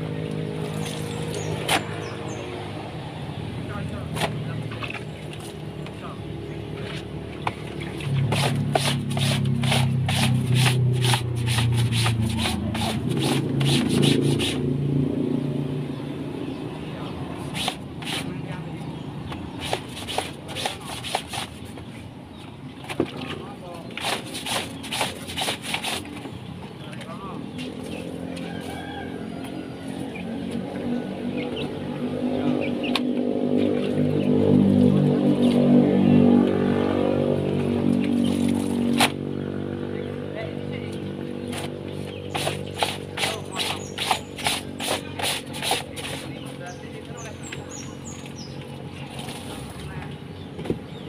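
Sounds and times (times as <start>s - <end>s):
low motor hum: 0.0s - 21.0s, 26.1s - 51.0s
vehicle engine approaching: 0.0s - 23.9s, 26.1s - 51.0s
rhythmic scraping strokes: 8.1s - 14.7s, 19.6s - 21.8s, 24.0s - 26.2s, 41.5s - 47.3s
bird chirps: 40.9s - 45.0s.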